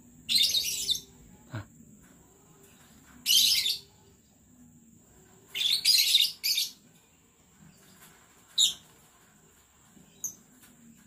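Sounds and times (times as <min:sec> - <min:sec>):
lovebirds chattering: 0:00.2 - 0:01.8, 0:02.8 - 0:04.1, 0:05.4 - 0:06.8, 0:07.6 - 0:09.1.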